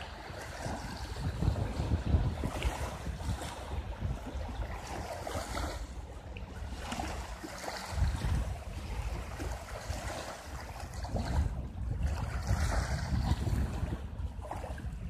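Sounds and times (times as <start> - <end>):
waves lapping on pebble shore: 0.0 - 14.7
wind buffeting microphone: 0.0 - 15.0.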